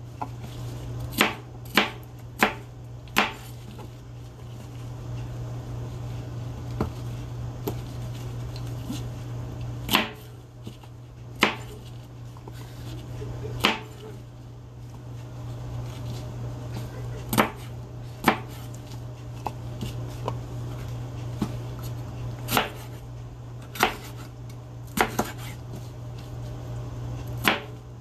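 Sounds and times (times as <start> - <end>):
steady low hum: 0.0 - 28.0
knife chopping on plastic board: 1.0 - 3.9, 9.8 - 11.8, 13.6 - 14.0, 17.2 - 18.7, 22.4 - 23.0, 23.6 - 24.3, 24.9 - 25.6, 27.4 - 27.8.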